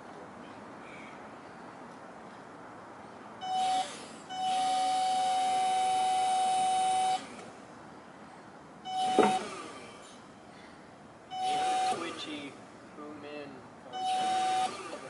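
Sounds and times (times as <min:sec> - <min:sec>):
hydraulic lift motor whining: 0:03.4 - 0:07.4, 0:08.9 - 0:10.0, 0:11.3 - 0:12.4, 0:13.9 - 0:15.0.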